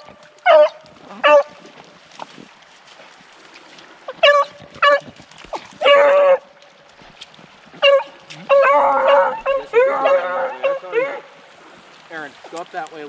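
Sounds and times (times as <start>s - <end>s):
beagles baying and yelping: 0.4s - 1.6s, 4.1s - 6.6s, 7.7s - 11.4s.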